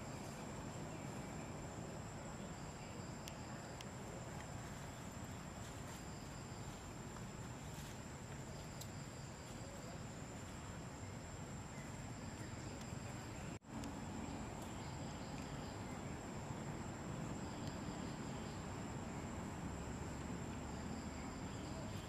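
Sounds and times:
faint ticks: 8.3 - 9.0, 12.3 - 13.0.

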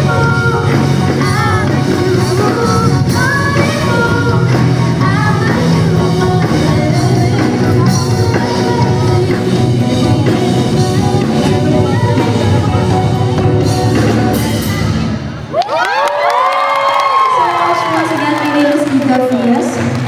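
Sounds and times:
woman singing: 0.0 - 14.3
live band playing: 0.0 - 15.6
crowd screaming and cheering: 0.0 - 20.0.

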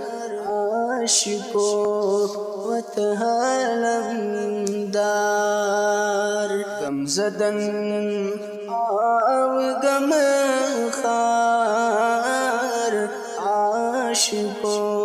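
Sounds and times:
man singing devotional song: 0.0 - 15.0.

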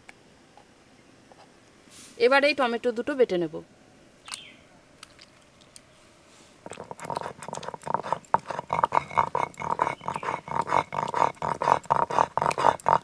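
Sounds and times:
stone roller grinding on stone: 6.7 - 13.0.

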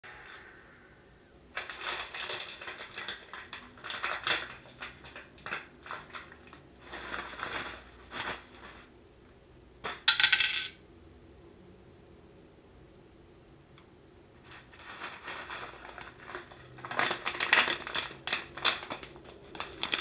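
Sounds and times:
crackers clattering onto dish: 1.5 - 8.9, 9.8 - 10.8, 14.4 - 20.0
plastic snack bag crinkling: 1.5 - 9.0, 14.4 - 20.0.

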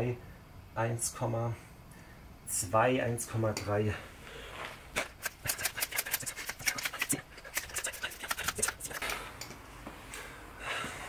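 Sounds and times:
hand pump strokes: 5.1 - 9.2.

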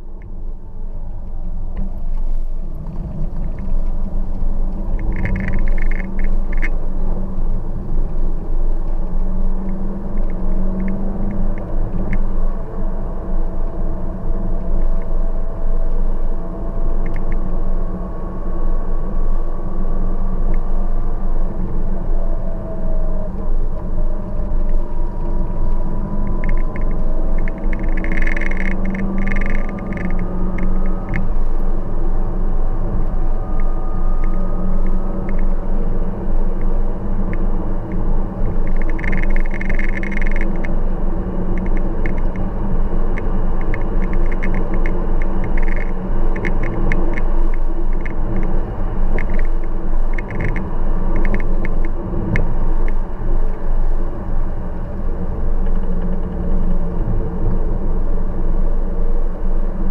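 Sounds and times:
car engine and road rumble: 0.0 - 59.9
crackly hiss: 1.8 - 8.2, 23.2 - 58.3.

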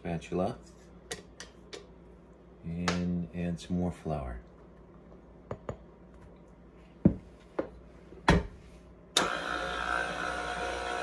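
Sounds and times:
stand mixer motor running: 9.2 - 11.0.

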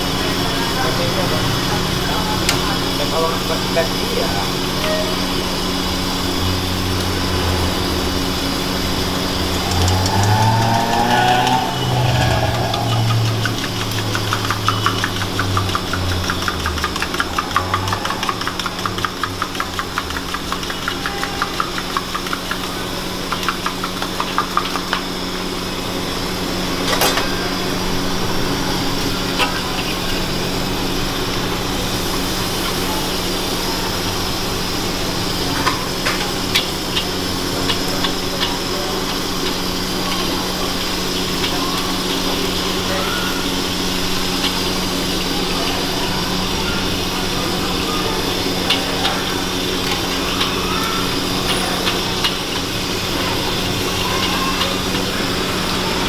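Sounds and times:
batter deep-frying in oil: 13.0 - 56.0.

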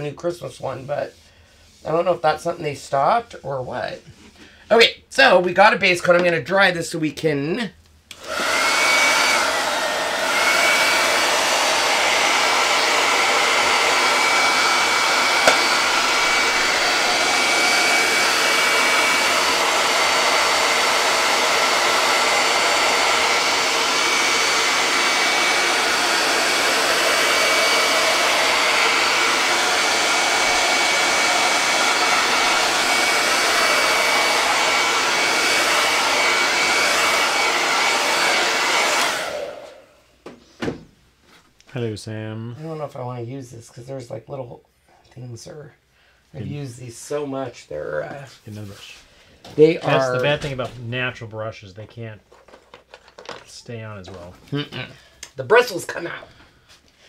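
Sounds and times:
hot-air dryer blowing: 8.1 - 40.4, 49.6 - 50.4, 55.2 - 56.4.

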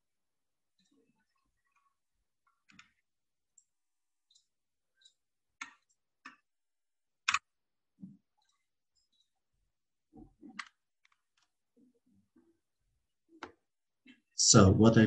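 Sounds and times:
computer mouse clicking: 4.3 - 6.4, 7.2 - 7.5, 10.4 - 11.6.

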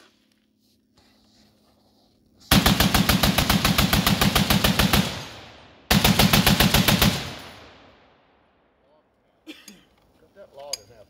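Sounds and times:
machine gun firing bursts: 2.5 - 7.7.

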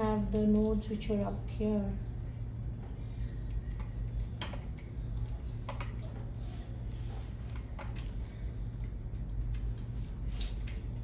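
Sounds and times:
low hum: 0.0 - 11.0
computer keyboard clicks: 0.4 - 1.4, 3.5 - 6.2, 7.5 - 9.7, 10.4 - 11.0.

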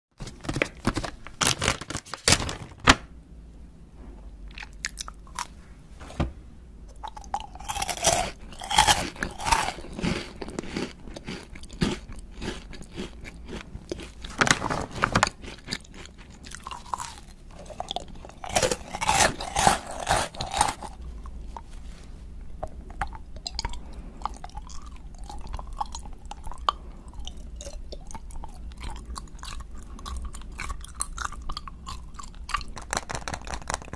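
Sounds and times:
plastic snack bag crinkling: 0.2 - 3.0, 7.4 - 21.0, 32.3 - 33.9
crunching and chewing snack: 4.5 - 5.6, 6.9 - 22.0, 22.6 - 33.9.

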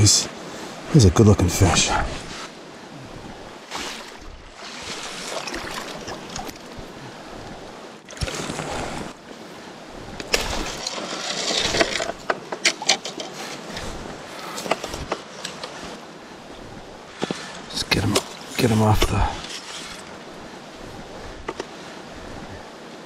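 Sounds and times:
stream rushing: 0.0 - 23.0
water splashing around a net: 3.7 - 6.8, 8.1 - 9.1, 10.3 - 12.1.

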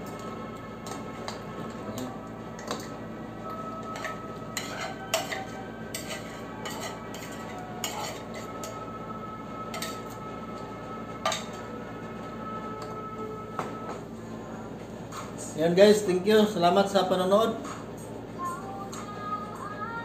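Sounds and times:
spoon scraping a plate: 3.9 - 8.8.

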